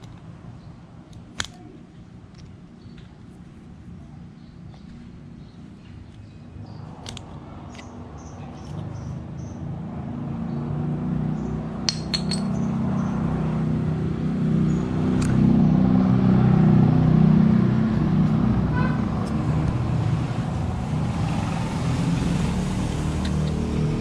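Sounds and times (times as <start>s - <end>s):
vehicle engine rumble: 0.0s - 24.0s.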